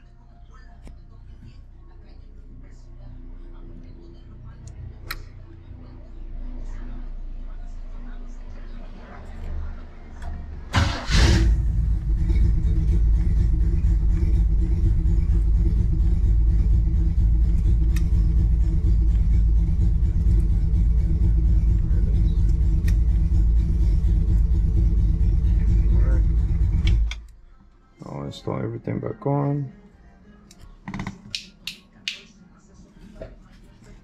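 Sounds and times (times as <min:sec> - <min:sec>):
car engine starting and idling: 0:09.6 - 0:27.4.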